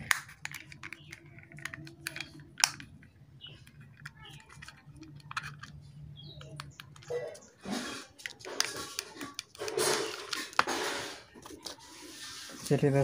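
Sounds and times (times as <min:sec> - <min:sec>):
plastic clicks and snaps: 0:00.0 - 0:07.5, 0:08.2 - 0:10.8.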